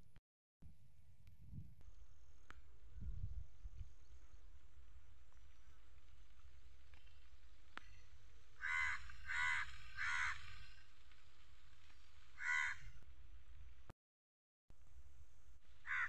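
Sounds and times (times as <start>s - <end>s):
crow cawing: 8.6s - 10.7s, 12.4s - 13.0s.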